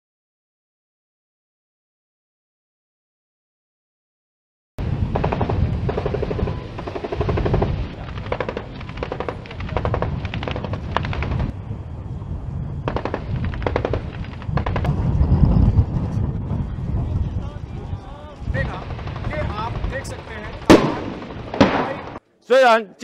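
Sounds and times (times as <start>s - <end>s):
low rumble: 4.8s - 22.2s
automatic gunfire bursts: 5.1s - 11.5s, 12.9s - 14.9s, 18.9s - 22.1s.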